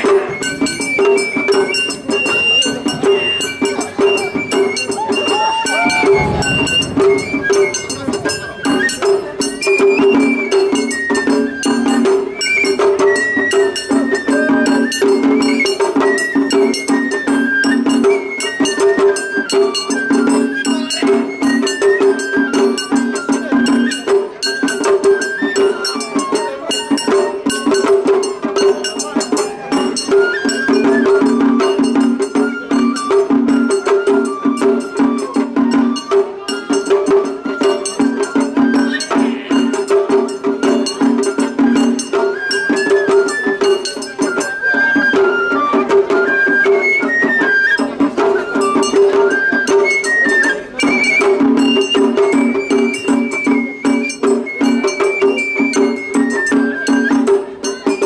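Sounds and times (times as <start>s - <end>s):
bamboo flute melody: 0.0s - 58.0s
fast drum strikes: 2.8s - 11.0s
hand-gong strikes: 5.7s - 9.3s.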